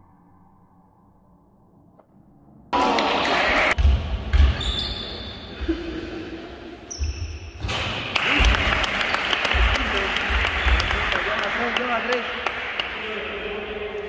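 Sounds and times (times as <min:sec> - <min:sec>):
high squeaks: 0:04.6 - 0:05.5.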